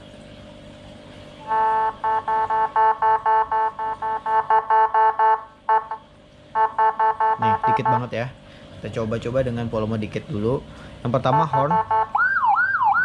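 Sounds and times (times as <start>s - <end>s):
pulsing siren buzz: 1.4s - 8.1s, 11.2s - 13.0s
short siren blip: 1.5s - 6.0s.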